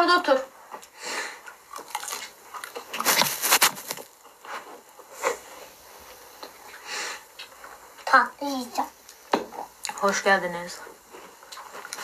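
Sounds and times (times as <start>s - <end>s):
chewing and biting: 0.8s - 4.9s, 11.0s - 12.0s.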